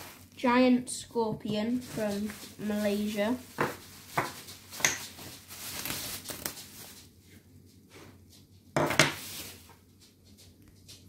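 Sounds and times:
short rustle or scrape: 0.0 - 0.4, 9.1 - 9.8
rustling handling noise: 0.0 - 11.0.

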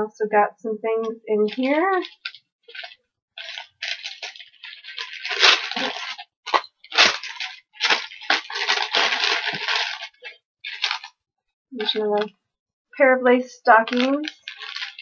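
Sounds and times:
plastic bag crackles: 1.4 - 11.2, 11.8 - 12.3, 13.6 - 15.0
plastic bag crinkling: 1.4 - 11.2, 11.8 - 12.3, 13.7 - 15.0.

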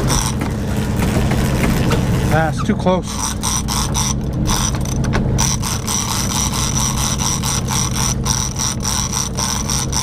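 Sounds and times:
fishing reel clicking and whining: 0.0 - 0.4, 3.0 - 10.0
boat engines droning: 0.0 - 10.0.

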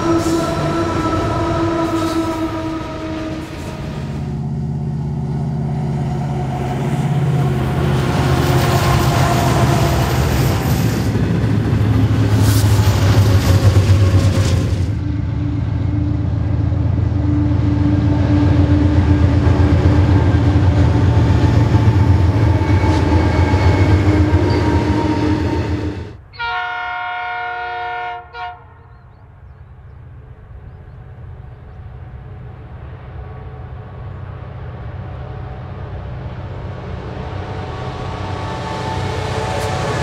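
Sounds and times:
locomotive horn: 0.0 - 10.6, 22.3 - 29.1
diesel locomotive engine rumble: 0.0 - 40.0
distant train approaching: 0.0 - 40.0.

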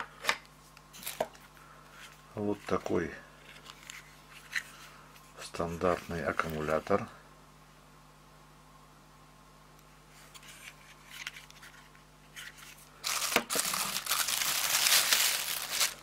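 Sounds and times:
plastic bag crinkling: 13.0 - 16.0.

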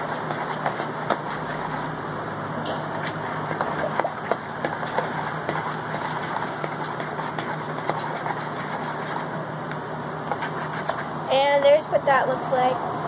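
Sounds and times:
steady background hum: 0.0 - 13.0
spoon scraping plastic bowl: 4.8 - 9.3, 10.3 - 11.1.

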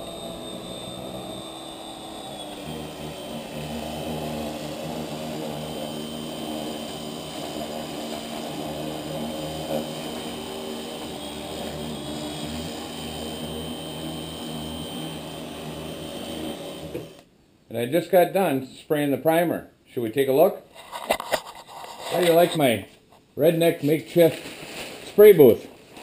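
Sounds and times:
pressure washer running: 0.0 - 17.2.

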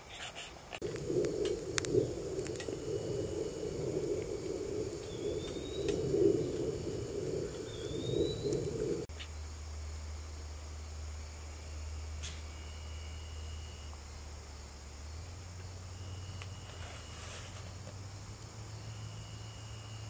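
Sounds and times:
fire crackling: 0.7 - 9.1
flames rushing: 0.8 - 9.1
faint low hum: 0.8 - 20.0.

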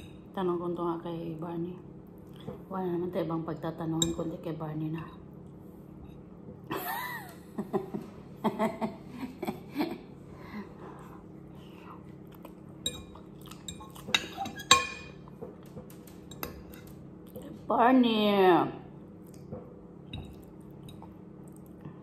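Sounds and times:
chewing: 12.2 - 14.5
fork clinking on ceramic bowl: 12.8 - 15.2.

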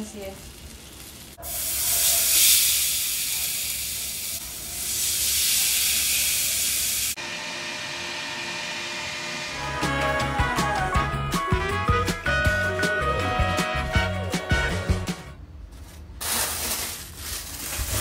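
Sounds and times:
fish sizzling on grill pan: 0.4 - 7.2.

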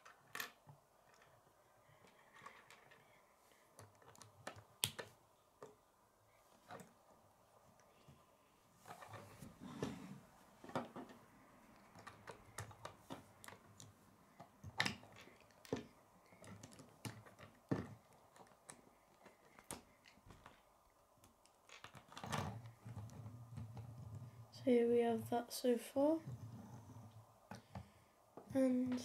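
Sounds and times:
plastic pieces clicking together: 2.0 - 5.8, 11.7 - 20.6.

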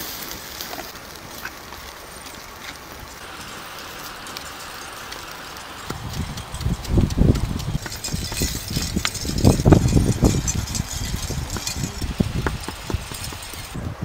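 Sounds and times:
stone pestle pounding in mortar: 10.0 - 13.7.

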